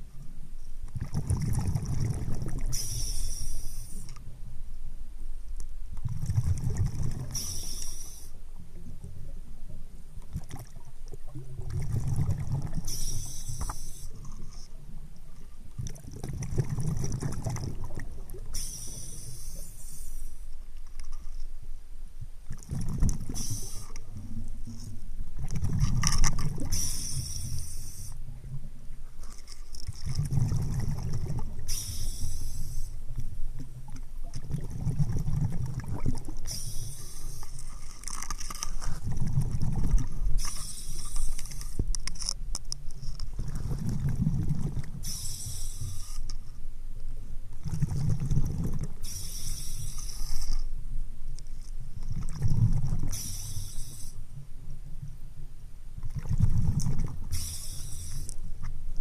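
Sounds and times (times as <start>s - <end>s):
exhaled bubbles rumbling: 0.9s - 3.0s, 6.0s - 7.7s, 8.6s - 13.4s, 14.2s - 18.8s, 22.4s - 27.6s, 29.8s - 32.0s, 33.1s - 36.9s, 37.6s - 40.7s, 43.3s - 45.2s, 47.5s - 49.1s, 51.9s - 53.4s, 56.0s - 57.5s
hissing regulator inhale: 2.7s - 4.2s, 7.3s - 8.4s, 12.8s - 14.6s, 18.5s - 20.5s, 23.3s - 24.2s, 26.7s - 28.2s, 31.7s - 33.0s, 36.4s - 37.7s, 40.3s - 41.9s, 45.0s - 46.4s, 49.0s - 50.7s, 53.1s - 54.3s, 57.3s - 58.4s.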